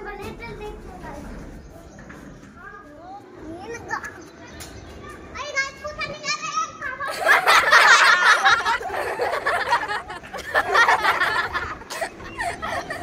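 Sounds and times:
excited laughter and giggling: 0:07.0 - 0:13.0.

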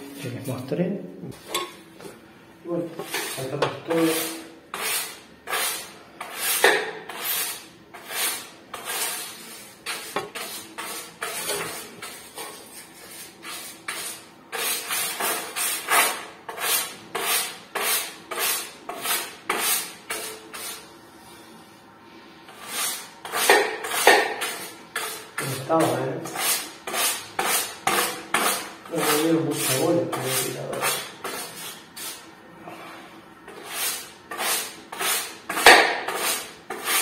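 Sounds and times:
brush scrubbing: 0:22.6 - 0:32.2.

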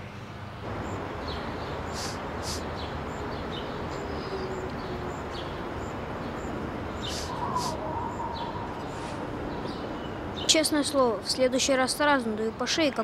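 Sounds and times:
distant traffic hum: 0:00.0 - 0:13.0
birds chirping: 0:00.6 - 0:13.0
short hissing sounds: 0:01.9 - 0:02.7, 0:07.1 - 0:07.8.

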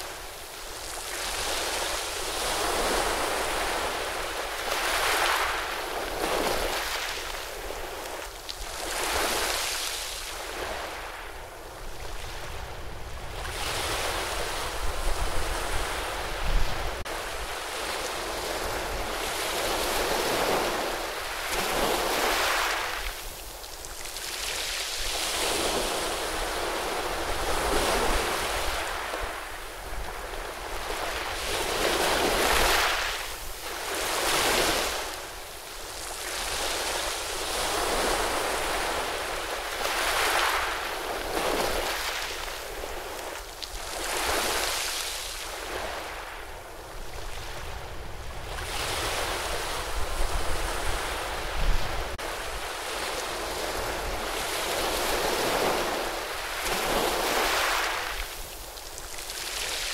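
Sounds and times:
wind rumble on microphone: 0:10.3 - 0:44.8, 0:45.4 - 0:57.5.

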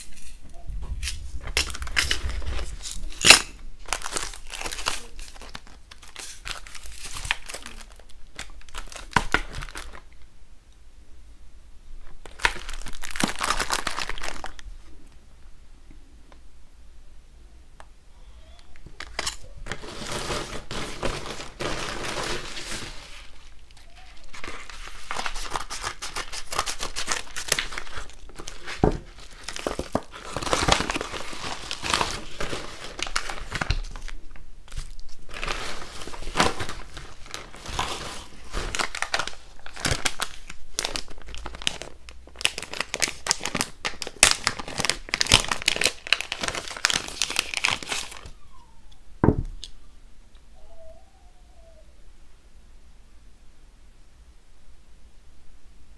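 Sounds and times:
plastic packaging crinkling: 0:00.0 - 0:10.2, 0:12.0 - 0:14.7, 0:18.9 - 0:48.4.

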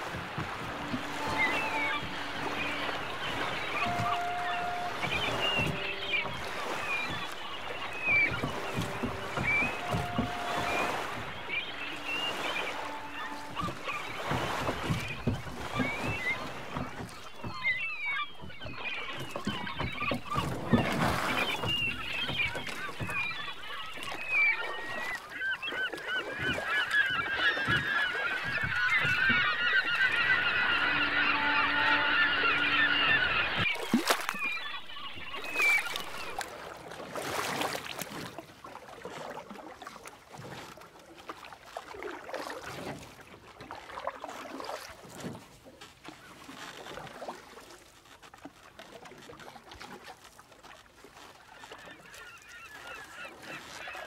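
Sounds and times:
flock of birds calling: 0:00.0 - 0:36.5, 0:51.6 - 0:54.0.

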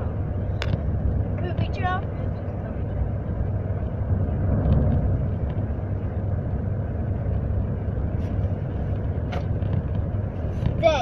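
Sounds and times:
car cabin road and engine rumble: 0:00.0 - 0:11.0.

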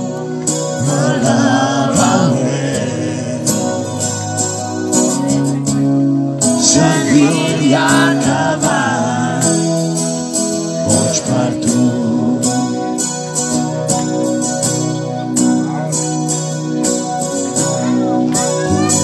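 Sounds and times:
person singing: 0:00.0 - 0:04.7, 0:06.5 - 0:13.4
strummed acoustic guitar: 0:00.0 - 0:19.0.

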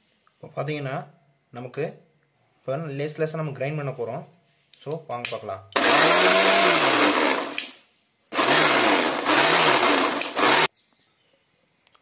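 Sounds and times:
mixer grinder motor: 0:05.8 - 0:10.7.

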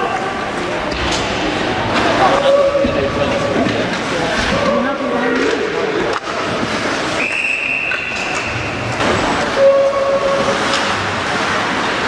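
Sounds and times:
crowd and rink noise: 0:00.0 - 0:12.0
high-pitched whistle blast: 0:07.2 - 0:08.7
horn blast: 0:09.5 - 0:10.7.

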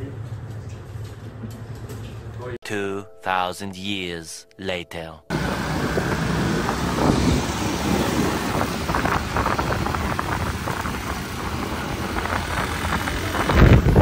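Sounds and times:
road noise: 0:05.3 - 0:14.0
wind buffeting microphone: 0:05.3 - 0:14.0.

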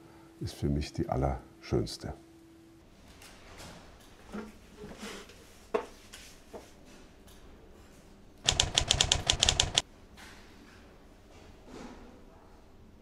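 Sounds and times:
typewriter keystrokes: 0:08.4 - 0:09.8.

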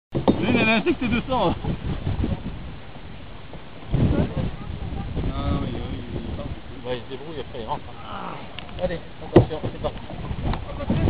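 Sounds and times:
river water around canoes: 0:00.1 - 0:11.0
wind on microphone: 0:00.1 - 0:11.0
soft low knocks: 0:07.8 - 0:11.0.

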